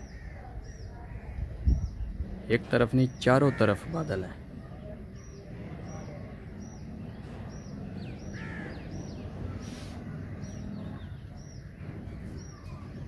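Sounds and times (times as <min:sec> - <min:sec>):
low outdoor rumble: 0:00.0 - 0:13.0
crow cawing: 0:08.3 - 0:08.9.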